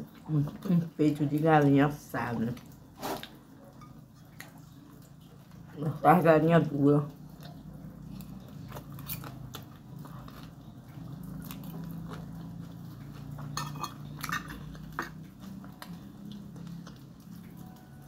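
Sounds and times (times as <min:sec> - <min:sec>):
person chewing food: 0:07.1 - 0:18.0
metal spoon clinking on glass plate: 0:13.5 - 0:15.1.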